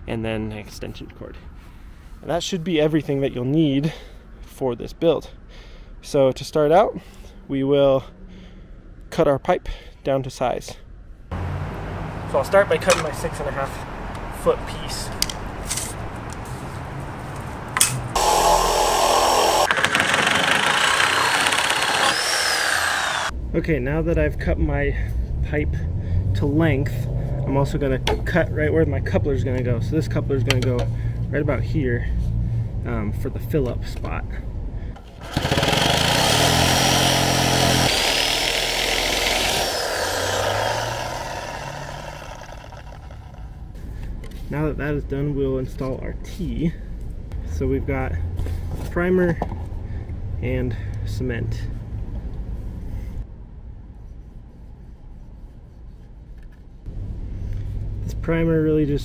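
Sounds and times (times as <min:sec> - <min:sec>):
reciprocating saw cutting pipe: 0:18.1 - 0:23.3, 0:35.0 - 0:43.7.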